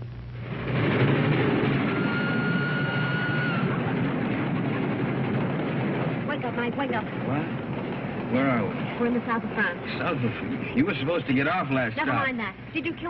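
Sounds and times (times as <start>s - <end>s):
train running: 0.0s - 13.0s
train whistle blowing: 1.9s - 3.7s.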